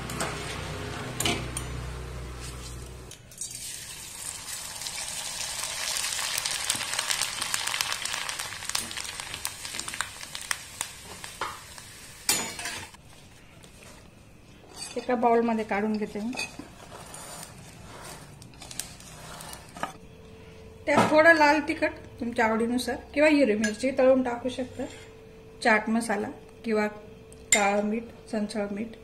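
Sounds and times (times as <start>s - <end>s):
rice sizzling in hot oil: 3.5s - 13.0s
wire skimmer scraping pan: 16.6s - 20.0s.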